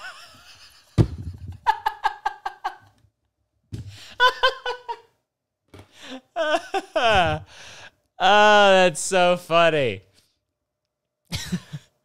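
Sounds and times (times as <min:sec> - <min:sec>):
man laughing hard: 0:00.0 - 0:02.9, 0:04.0 - 0:05.1, 0:06.0 - 0:07.6, 0:11.3 - 0:11.9.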